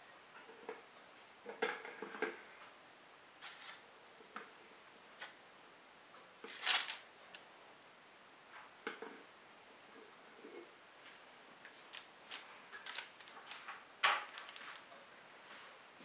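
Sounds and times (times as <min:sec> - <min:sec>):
parchment paper rustle: 0:03.4 - 0:03.8, 0:06.4 - 0:07.1, 0:11.6 - 0:15.8.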